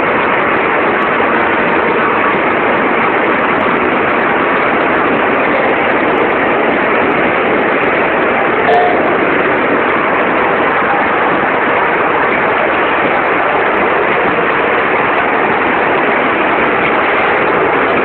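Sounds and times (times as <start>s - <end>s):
packaging line machinery running: 0.0s - 18.0s.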